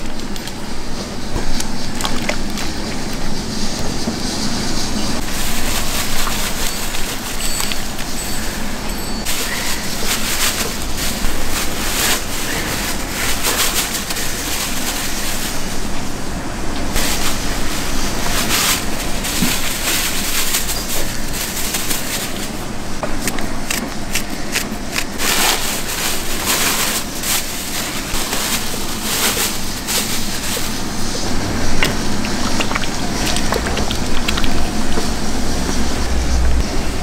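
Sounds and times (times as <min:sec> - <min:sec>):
utensils and pots clattering: 0:00.0 - 0:16.0, 0:16.8 - 0:36.1
steady low rumble: 0:28.1 - 0:37.0.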